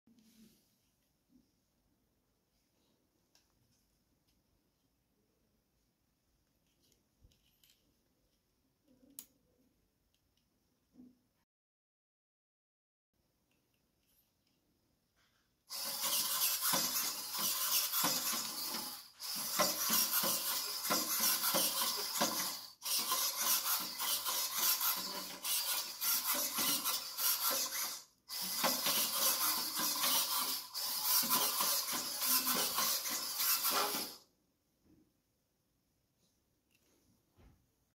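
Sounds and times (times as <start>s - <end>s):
robot servos whirring: 15.7s - 34.2s.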